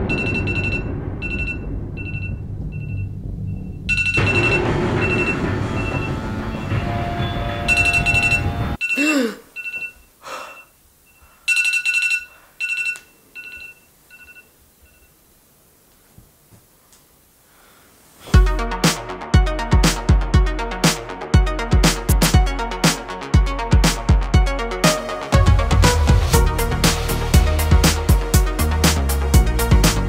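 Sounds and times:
loud low rumble with held tones: 0.0 - 8.8
electronic alarm beeping: 0.0 - 9.0, 9.6 - 15.1.

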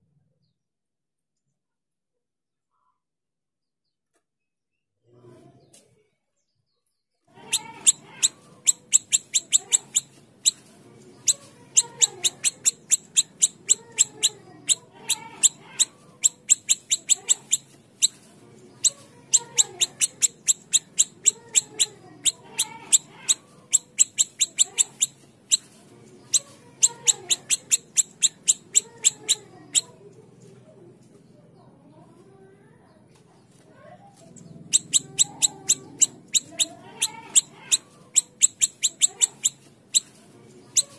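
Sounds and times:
bird calling with sharp ticking notes: 7.5 - 10.1, 11.8 - 17.7, 19.4 - 25.6, 26.3 - 29.9, 34.7 - 40.1.

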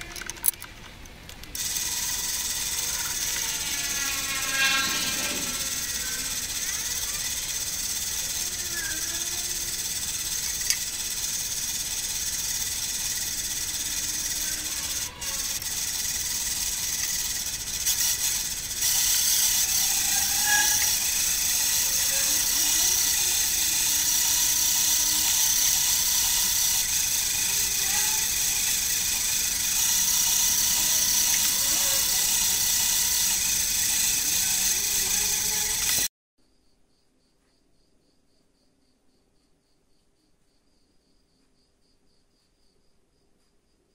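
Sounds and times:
lathe drilling aluminium: 1.6 - 36.1.

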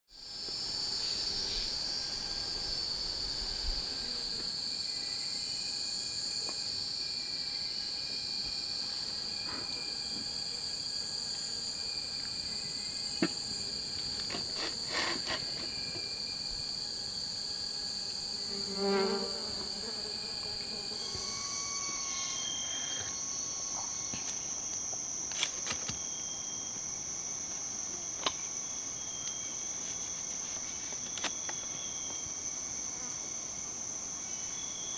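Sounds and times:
insect chorus: 0.1 - 34.9
faint chirps: 21.0 - 24.4.

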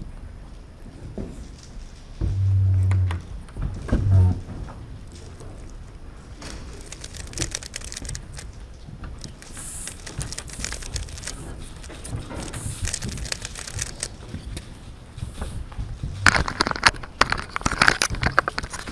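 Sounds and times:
paper rustling: 6.4 - 14.4, 16.2 - 18.9.

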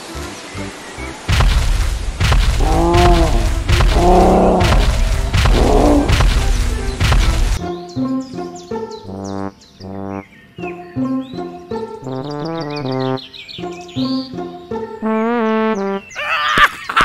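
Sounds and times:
heavy booming footfalls: 1.3 - 7.6
deep dinosaur roars: 2.6 - 6.9.

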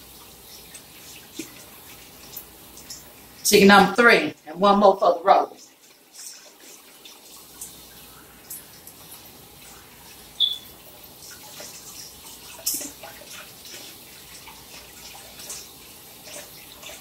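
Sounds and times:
water splashing off poultry: 5.7 - 17.0
faucet running into sink: 5.8 - 17.0
brief high squeak: 10.4 - 10.7.

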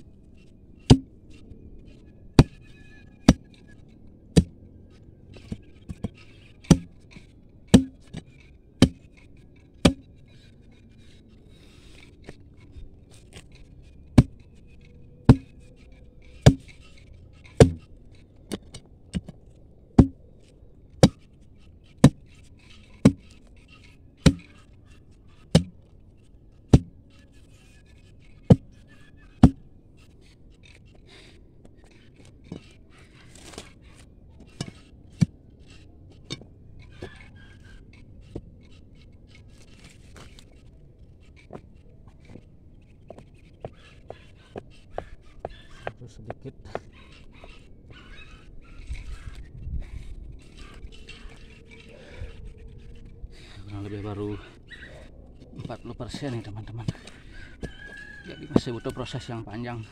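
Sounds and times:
steel bar striking stony soil: 0.8 - 1.1, 2.4 - 4.6, 5.4 - 17.9, 18.5 - 20.2, 20.9 - 25.9, 26.6 - 29.7, 31.9 - 37.4, 58.5 - 59.2.

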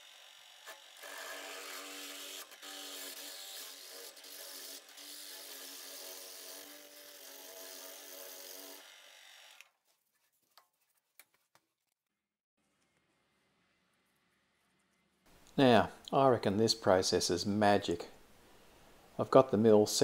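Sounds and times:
drill bit cutting metal: 0.0 - 9.6.

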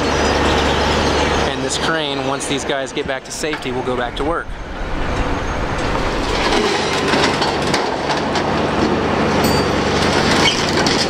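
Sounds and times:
diesel engines running: 0.0 - 11.0
metal clanking and scraping: 3.4 - 11.0
high metallic squeal: 4.2 - 7.6, 9.5 - 11.0.

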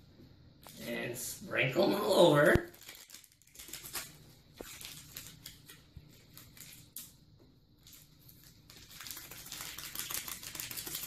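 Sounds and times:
packet crinkling and tearing: 1.8 - 7.2, 7.8 - 11.0.

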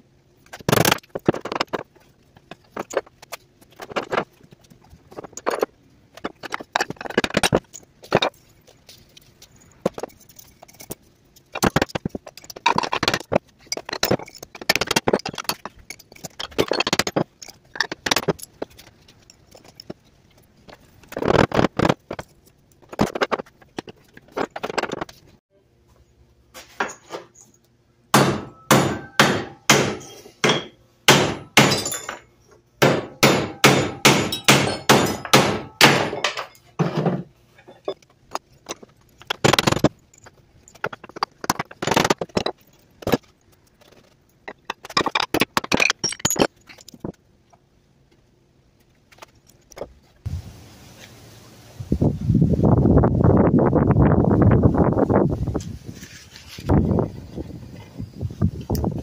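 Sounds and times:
metal pieces clinking: 0.5 - 25.2, 31.6 - 32.4, 37.6 - 47.2
hammer striking metal: 28.1 - 32.2, 32.8 - 36.5.

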